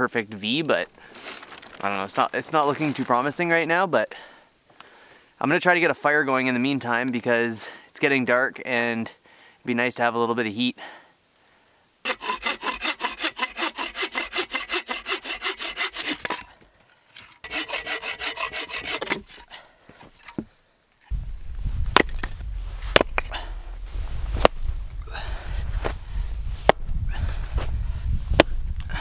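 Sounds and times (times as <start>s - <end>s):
hand saw cutting a log: 12.0s - 16.6s, 17.2s - 19.5s
hatchet chopping wood: 17.5s - 19.4s, 22.0s - 22.3s, 22.9s - 23.3s, 24.4s - 24.7s, 26.6s - 26.8s, 28.4s - 28.6s
low rumble: 21.1s - 29.0s.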